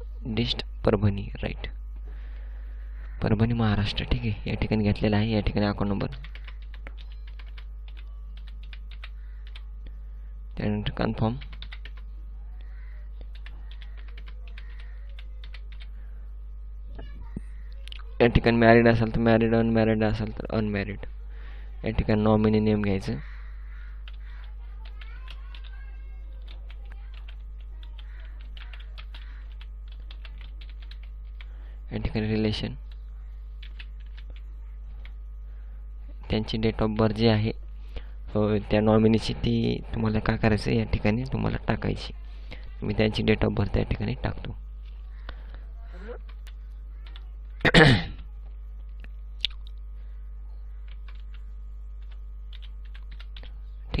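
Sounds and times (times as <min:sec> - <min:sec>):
low electrical hum: 0:00.0 - 0:54.0
keyboard typing: 0:05.8 - 0:09.7, 0:11.3 - 0:12.0, 0:13.2 - 0:16.0, 0:24.0 - 0:31.5, 0:32.8 - 0:35.2, 0:46.2 - 0:48.3, 0:50.8 - 0:53.6.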